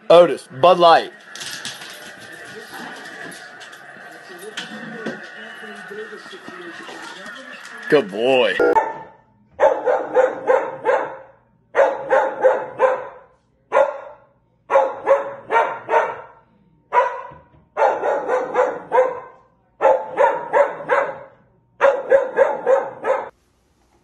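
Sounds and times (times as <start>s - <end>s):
dog barking: 8.6s - 23.3s.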